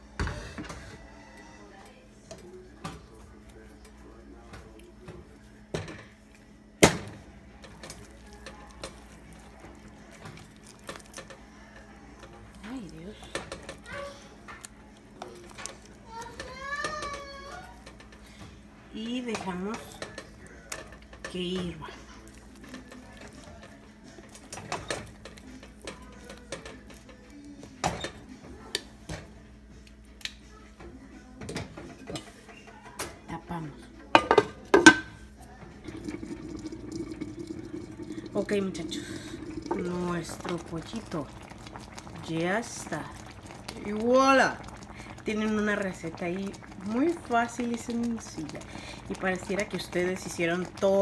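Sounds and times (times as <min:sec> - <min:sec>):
sauce simmering with pops: 0:35.8 - 0:51.0.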